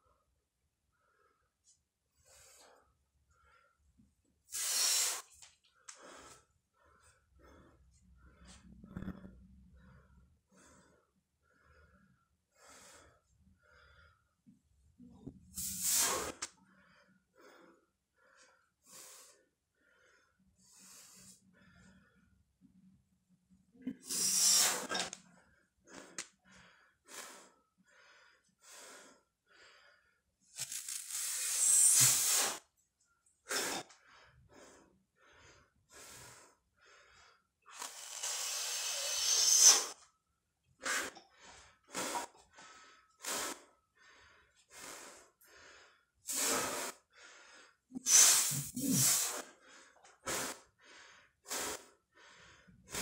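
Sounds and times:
man breathing hard: 24.0 - 30.3, 33.5 - 40.1, 40.8 - 53.0.

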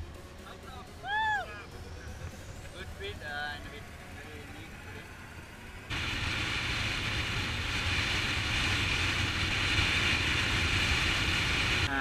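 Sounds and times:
faint roadside sound: 0.0 - 12.0
motorcycle engine at speed: 2.0 - 12.0
wind rushing: 5.9 - 11.9.

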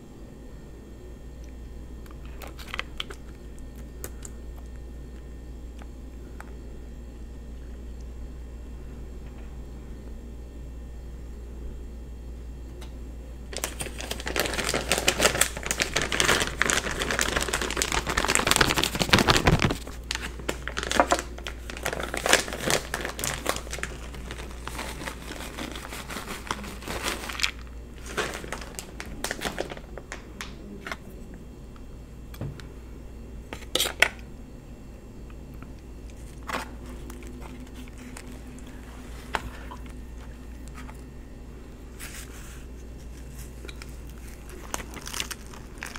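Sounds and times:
plastic bag crinkling: 13.5 - 31.0, 36.0 - 41.1, 42.0 - 45.9.

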